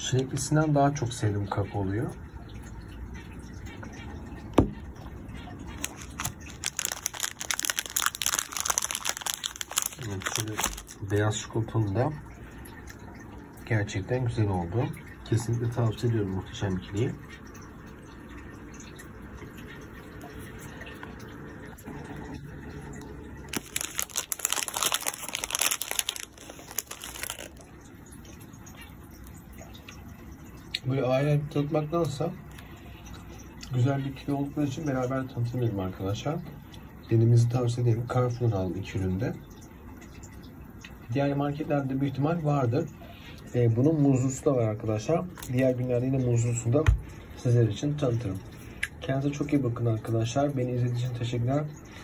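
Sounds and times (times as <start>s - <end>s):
plastic packaging crinkling: 5.7s - 11.2s, 23.5s - 27.7s, 45.3s - 45.8s.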